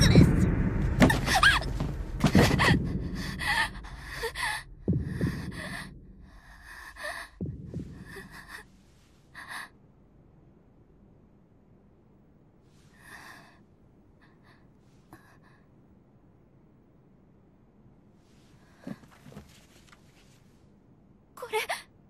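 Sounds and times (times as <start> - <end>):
woman gasping and panting: 2.2 - 9.8.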